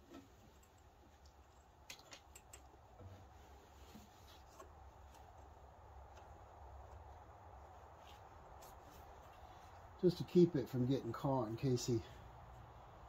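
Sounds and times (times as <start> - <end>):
hands tying wiring clicks: 0.0 - 3.3, 4.0 - 10.0.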